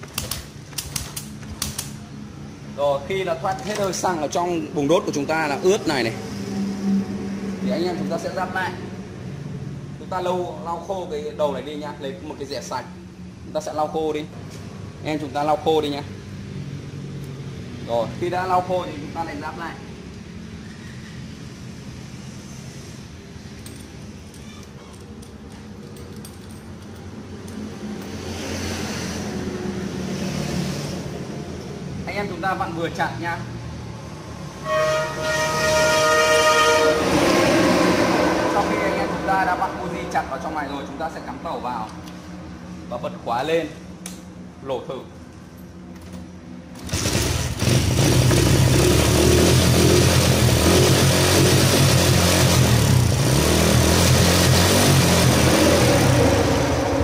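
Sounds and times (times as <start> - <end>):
vehicle passing: 2.2 - 10.4, 27.2 - 43.0
motorcycle engine kick-started: 46.8 - 50.6.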